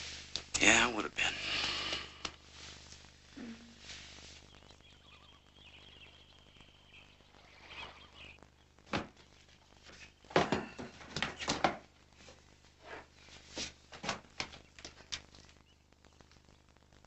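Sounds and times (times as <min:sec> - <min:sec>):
rustling: 0:00.0 - 0:17.0
objects knocking on wooden shelf: 0:10.3 - 0:11.9.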